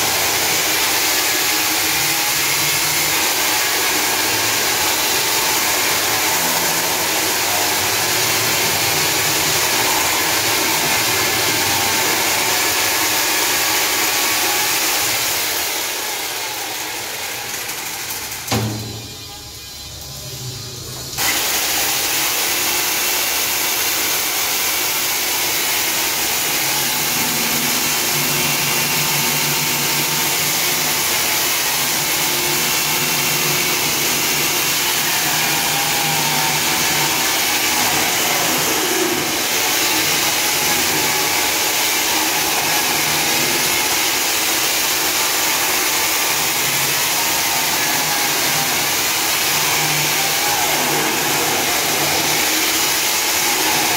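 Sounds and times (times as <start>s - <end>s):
chainsaw cutting concrete: 21.2s - 53.9s.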